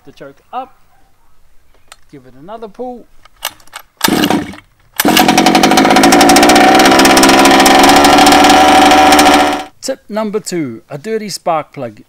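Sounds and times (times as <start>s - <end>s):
pull-start cord: 3.4s - 9.7s
two-stroke engine running: 4.1s - 9.7s.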